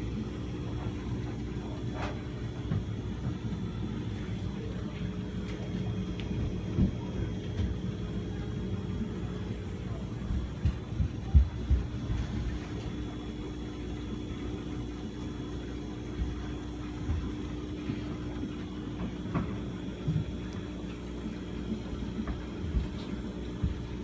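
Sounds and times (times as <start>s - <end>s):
aquarium air pump humming: 0.0s - 24.0s.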